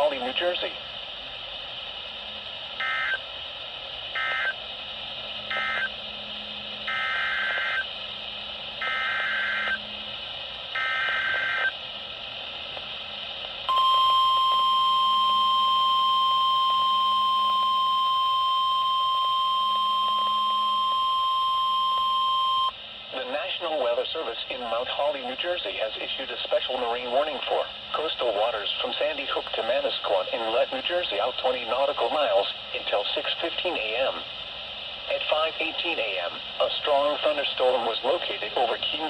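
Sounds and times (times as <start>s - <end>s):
radio hiss: 0.0s - 39.0s
steady warning alert tone: 5.5s - 6.0s, 13.7s - 22.7s.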